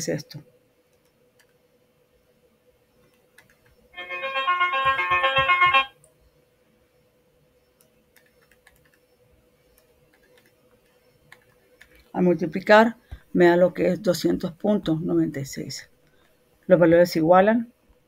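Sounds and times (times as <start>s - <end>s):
faint steady hum: 0.0s - 18.0s
piano-like musical phrase: 4.0s - 5.9s
faint clicks: 9.8s - 12.0s.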